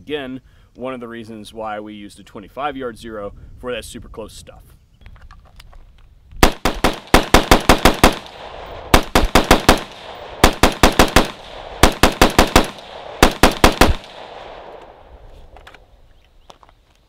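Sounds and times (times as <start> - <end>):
rifle firing rapid shots: 6.4 - 14.8.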